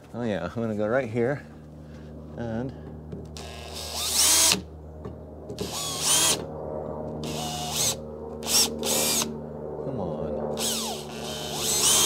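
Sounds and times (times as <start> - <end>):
power drill whining: 3.4 - 4.7, 5.6 - 6.4, 7.2 - 9.3, 10.5 - 12.0.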